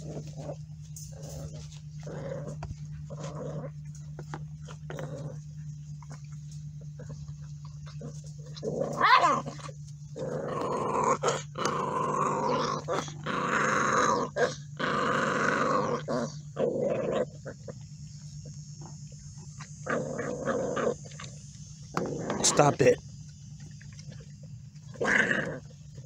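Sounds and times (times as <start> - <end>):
puppies growling: 0.0 - 26.0
puppy whining: 0.0 - 26.0.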